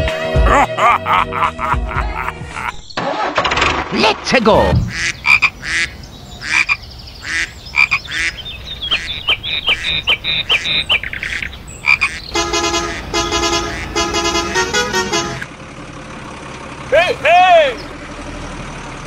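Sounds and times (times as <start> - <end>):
frogs croaking: 4.9 - 14.6
vehicle horn honking: 12.2 - 15.5.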